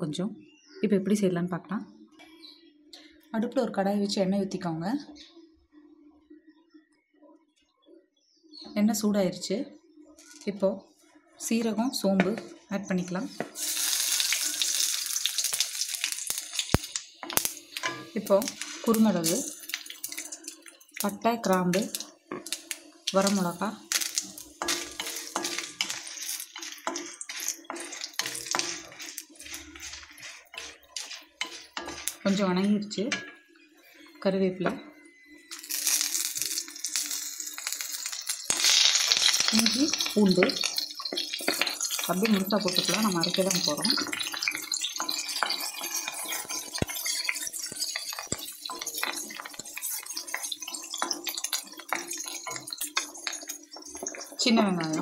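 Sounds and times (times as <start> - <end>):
spices sizzling in hot oil: 10.1 - 10.6, 11.4 - 34.1, 35.5 - 55.0
spatula scraping a pan: 13.4 - 21.1, 21.7 - 34.1, 35.5 - 55.0.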